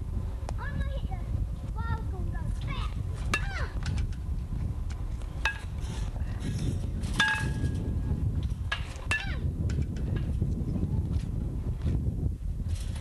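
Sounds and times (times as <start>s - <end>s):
wind rumble on microphone: 0.0s - 13.0s
baseballs pinging off metal bat: 5.4s - 5.8s, 7.1s - 7.8s, 8.7s - 9.5s.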